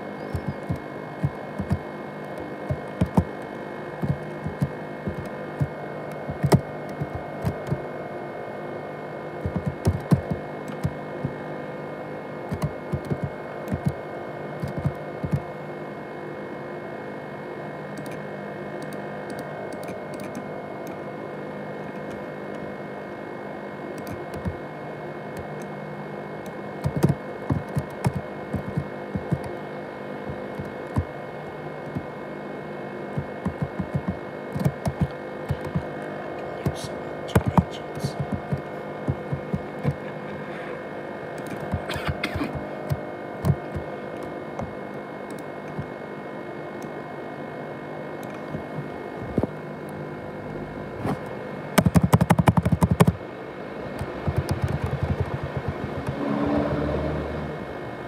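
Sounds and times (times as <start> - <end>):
laptop fan whining hum: 0.0 - 58.0
sharp clicks: 0.3 - 3.3, 4.0 - 7.8, 9.4 - 11.4, 12.5 - 14.0, 18.0 - 18.2, 18.8 - 21.0, 24.0 - 24.6, 26.8 - 29.5, 33.2 - 35.9, 36.6 - 40.0, 51.8 - 53.2, 54.0 - 56.2.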